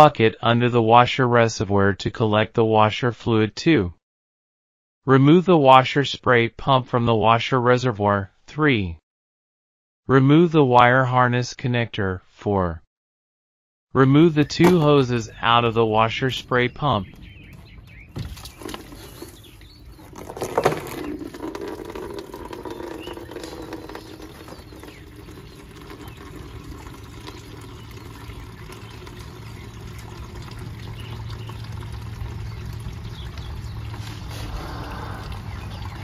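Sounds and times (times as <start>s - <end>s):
fluid trickling into bucket: 17.6s - 36.0s.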